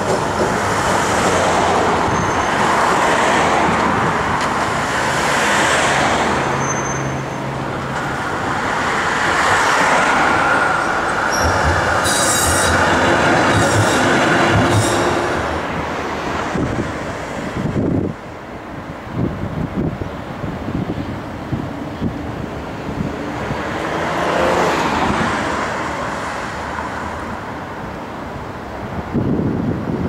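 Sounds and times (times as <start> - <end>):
tram wheels squealing: 0.0 - 3.2, 6.3 - 7.6, 9.4 - 15.8
clunks and rattling over track: 0.0 - 6.6, 7.6 - 18.2
road traffic: 0.0 - 30.0
tram wheels on rails: 0.0 - 30.0.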